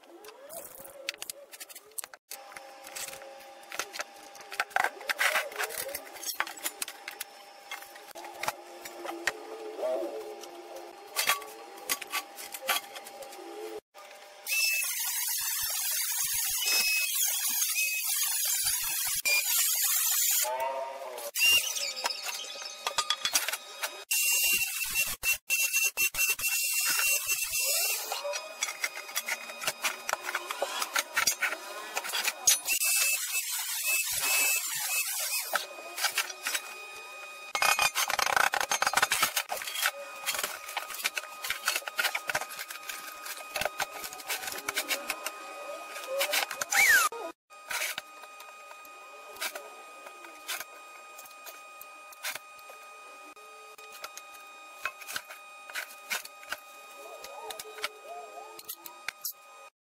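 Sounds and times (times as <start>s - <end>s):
angle grinder grinding steel: 14.5s - 59.7s.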